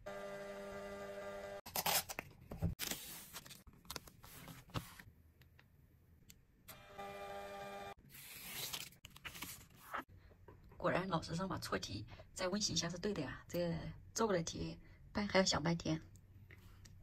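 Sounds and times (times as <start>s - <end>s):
paper ripping and rustling: 1.7s - 5.0s, 8.1s - 10.0s.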